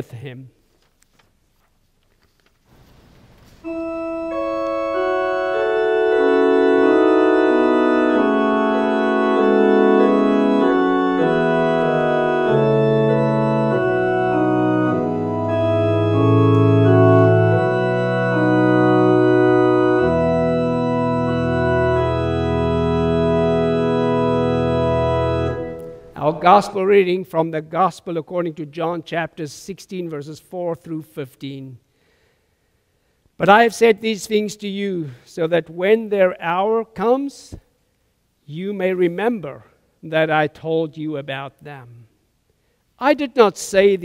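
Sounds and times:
deep organ pedal bass: 3.6s - 27.1s
church organ held chords: 3.6s - 28.8s.

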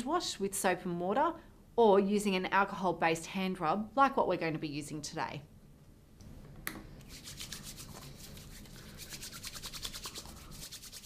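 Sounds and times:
hands rubbing together: 7.0s - 11.0s.

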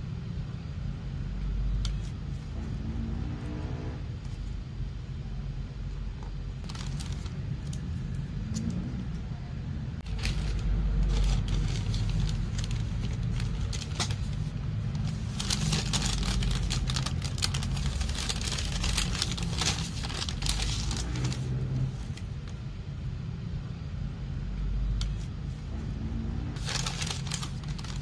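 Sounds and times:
steady low rumble: 0.0s - 28.0s
paper rustling and crinkling: 6.6s - 7.9s, 10.0s - 22.6s, 26.6s - 28.0s.

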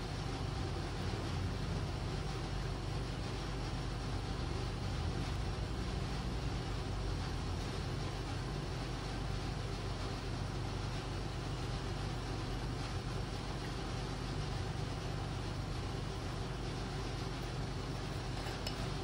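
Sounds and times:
low machine hum and rumble: 0.0s - 19.0s.

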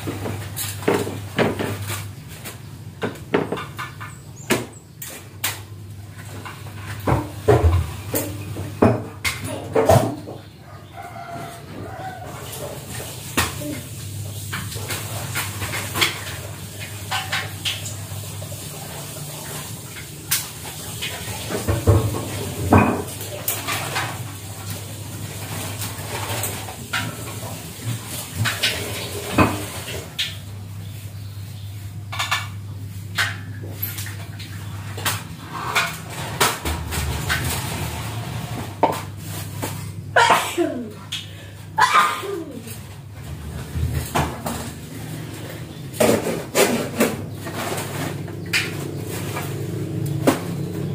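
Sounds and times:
loud clatter of dishes: 0.0s - 10.6s, 11.8s - 30.4s, 32.1s - 50.9s
dishes and utensils clinking: 11.8s - 18.0s, 20.0s - 24.8s, 32.1s - 41.3s.

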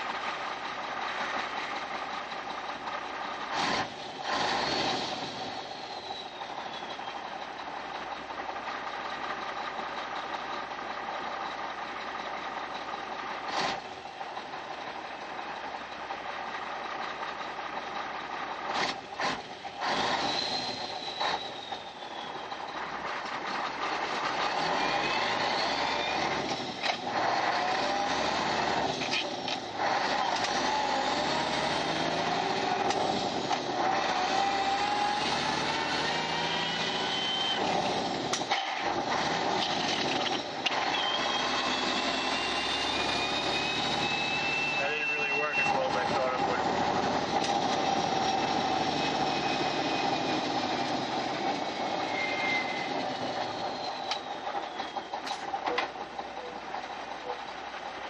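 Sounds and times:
diesel truck engine pulling: 0.0s - 58.0s.

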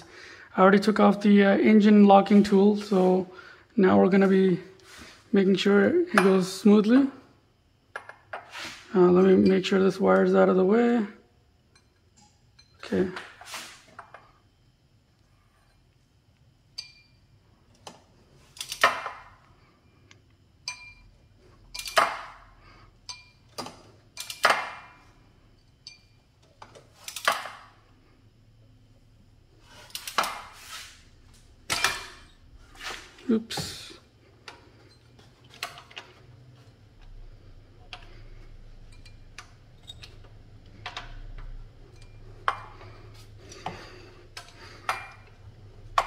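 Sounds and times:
wrench clinking and scraping metal: 38.9s - 40.3s.

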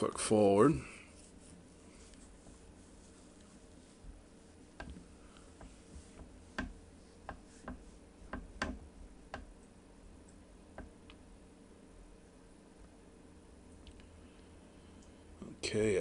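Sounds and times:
faint electrical hum: 0.0s - 16.0s.

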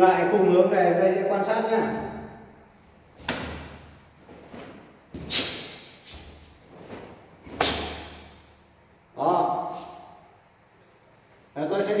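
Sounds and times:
cloth uniform snapping: 3.2s - 8.5s.

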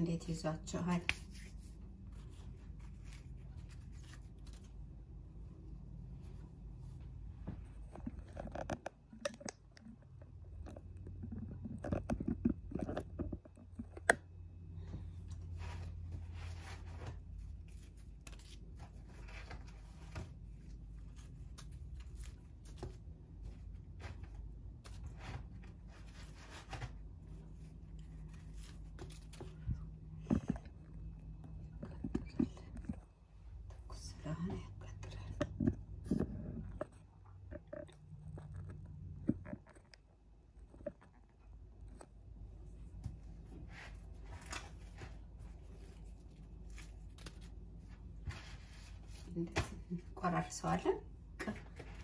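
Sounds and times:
flatbread crunching and crackling: 15.0s - 33.7s.

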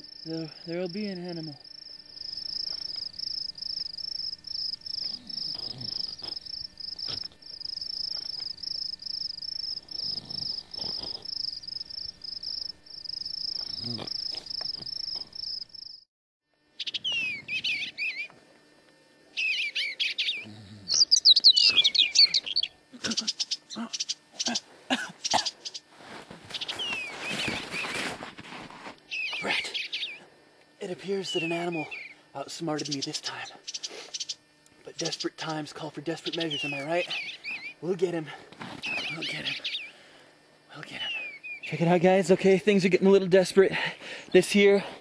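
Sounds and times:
night insects chirping: 0.0s - 16.0s, 19.3s - 28.2s, 29.1s - 44.9s
birds singing: 16.8s - 18.4s, 19.3s - 25.9s, 26.5s - 28.1s, 29.1s - 30.3s, 31.0s - 38.1s, 38.8s - 40.1s, 40.8s - 42.1s.

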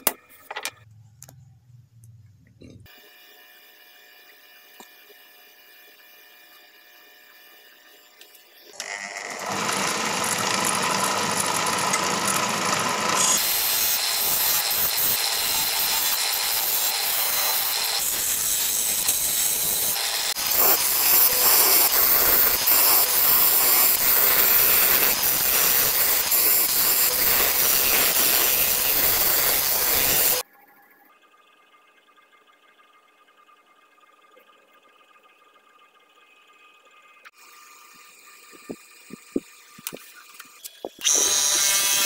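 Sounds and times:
lathe motor spinning: 2.9s - 30.5s, 35.1s - 42.0s
tool scraping spinning wood: 8.7s - 30.4s.

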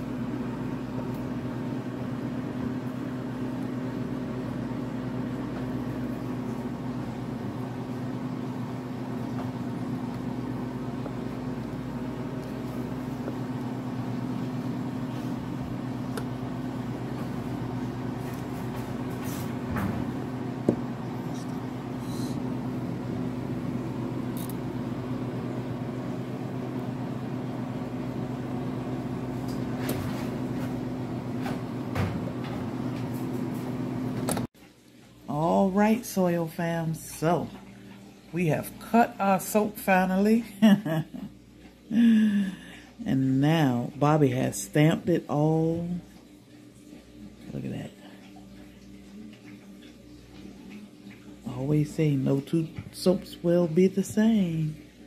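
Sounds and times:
machine motor hum: 0.0s - 34.5s.

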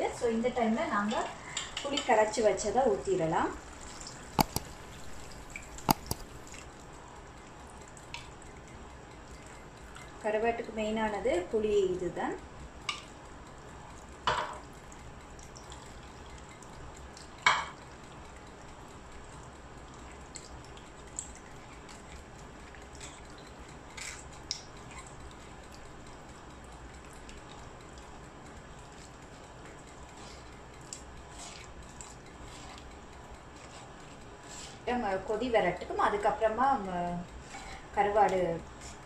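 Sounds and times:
water dripping into a pot: 12.8s - 33.6s.

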